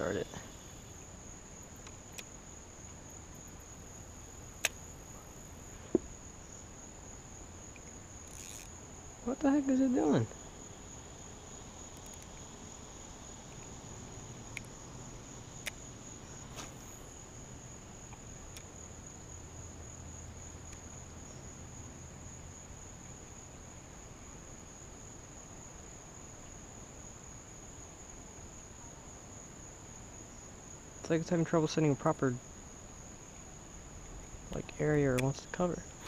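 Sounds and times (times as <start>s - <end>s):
insect trill: 0.0s - 36.0s
faint sharp clicks: 1.8s - 2.3s, 4.6s - 4.8s, 15.6s - 15.8s, 18.1s - 18.7s, 34.5s - 35.4s.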